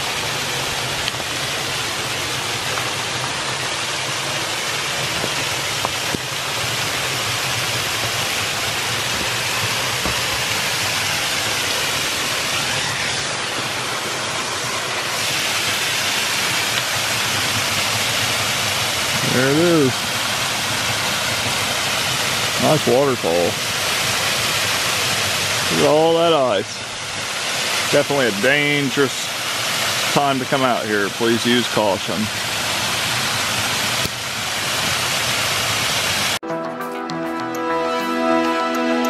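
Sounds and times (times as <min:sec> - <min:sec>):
waterfall rushing: 0:00.0 - 0:36.4.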